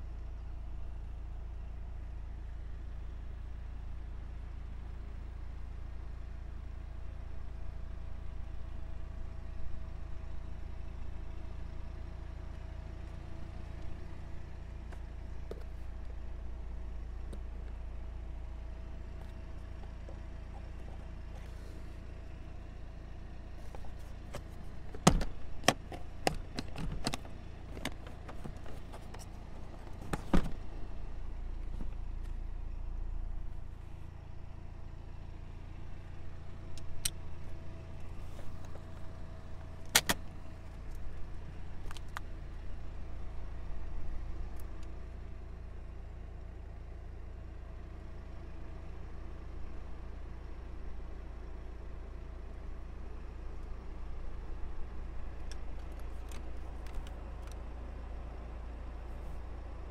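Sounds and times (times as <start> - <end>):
car seat switches clicking: 39.9 - 40.2.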